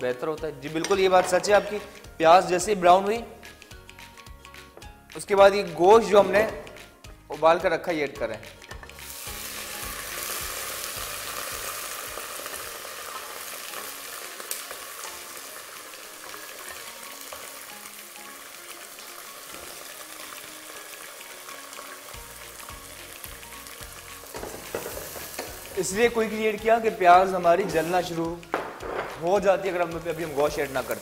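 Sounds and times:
meat sizzling in hot oil: 0:08.4 - 0:31.0.

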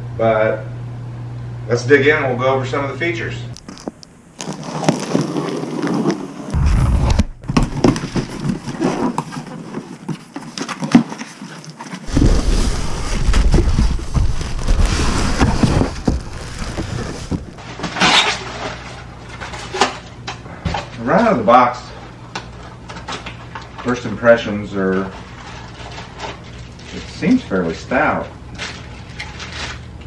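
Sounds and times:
plastic wrapping crinkling: 0:03.6 - 0:06.2, 0:07.3 - 0:17.6
foam packing pulled free: 0:03.7 - 0:17.7
cardboard box handled: 0:12.1 - 0:17.6.

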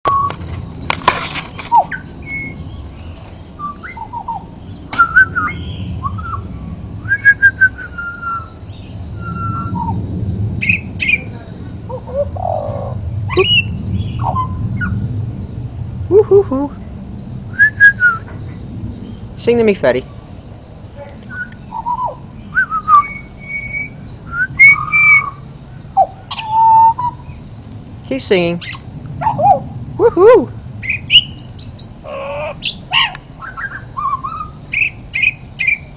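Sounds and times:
bird singing fluting whistles: 0:00.1 - 0:00.4, 0:01.6 - 0:02.9, 0:03.6 - 0:10.0, 0:13.3 - 0:15.0, 0:17.5 - 0:18.4, 0:21.3 - 0:27.4, 0:28.6 - 0:32.0, 0:32.6 - 0:35.9.

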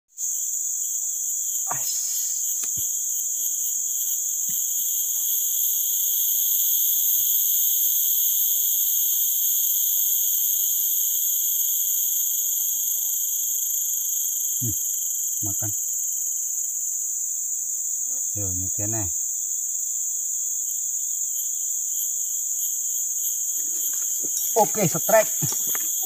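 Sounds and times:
insects droning: 0:00.1 - 0:26.0.

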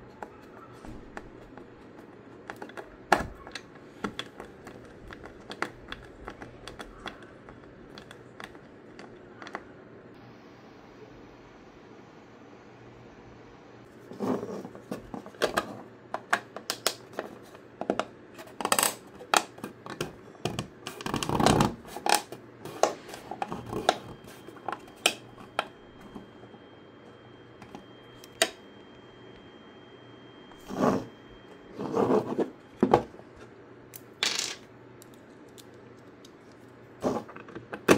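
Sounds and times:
hard plastic clicking and scraping: 0:00.1 - 0:09.7.

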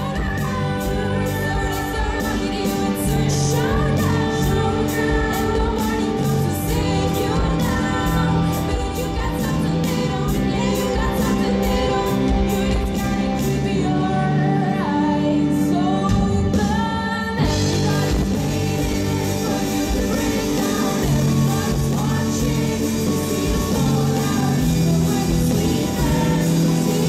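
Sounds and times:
live rock band playing: 0:00.0 - 0:27.0
person singing: 0:00.0 - 0:27.0.

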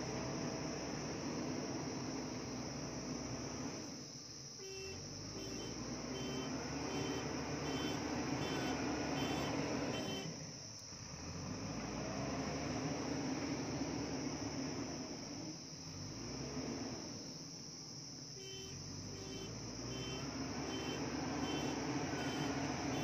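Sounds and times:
crickets chirping: 0:00.0 - 0:23.0
diesel engine running: 0:04.8 - 0:17.2, 0:18.7 - 0:23.0.

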